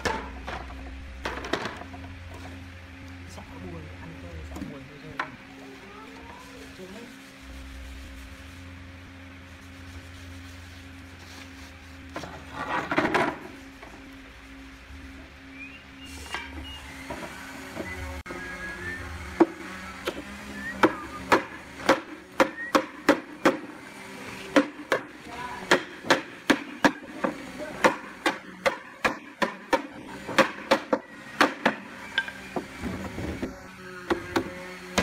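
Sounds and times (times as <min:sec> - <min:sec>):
hammer striking wood: 0:20.8 - 0:23.7, 0:24.5 - 0:32.7, 0:34.1 - 0:35.0.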